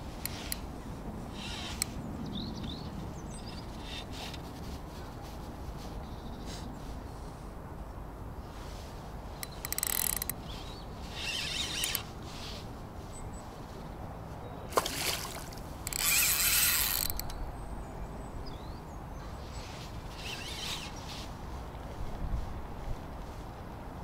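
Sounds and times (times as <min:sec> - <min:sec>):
fishing reel drag clicking: 0:09.4 - 0:10.4, 0:11.1 - 0:12.1, 0:15.8 - 0:17.4
fish splashing: 0:14.7 - 0:15.7.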